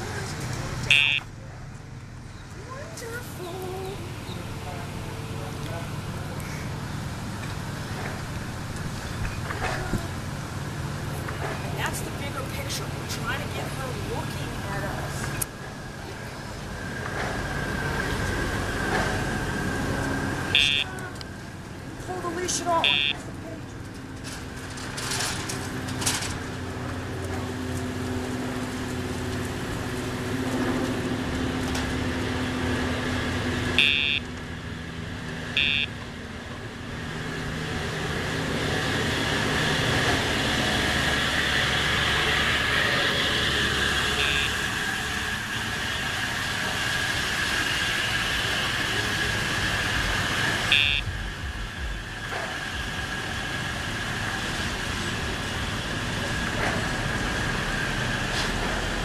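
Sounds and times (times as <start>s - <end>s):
traffic noise: 0.0s - 59.0s
short high electronic beeps: 0.9s - 1.3s, 20.6s - 20.9s, 22.9s - 23.2s, 33.8s - 34.2s, 35.6s - 35.9s, 50.7s - 51.1s.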